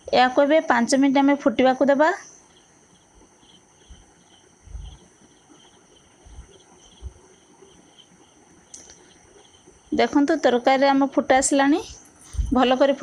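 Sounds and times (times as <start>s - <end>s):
steady high whine: 0.0s - 13.0s
faint high chirping: 1.2s - 11.0s
soft low thumps: 3.8s - 5.2s.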